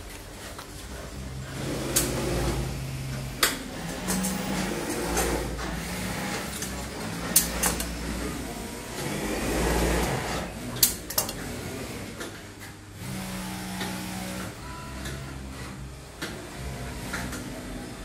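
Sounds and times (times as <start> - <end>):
sewing machine motor hum: 0.4 - 12.2, 13.0 - 18.0
sewing machine stitching: 1.4 - 12.2.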